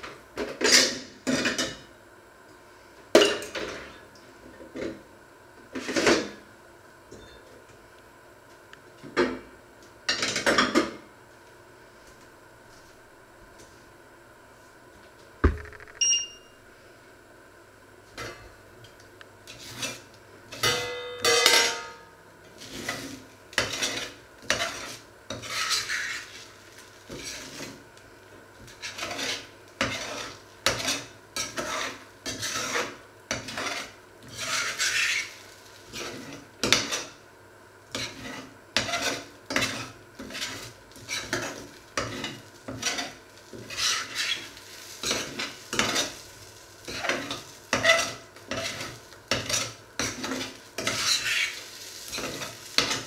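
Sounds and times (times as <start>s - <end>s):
fork scraping saucepan: 22.6s - 26.3s, 28.8s - 35.3s, 37.9s - 46.2s, 46.9s - 53.0s.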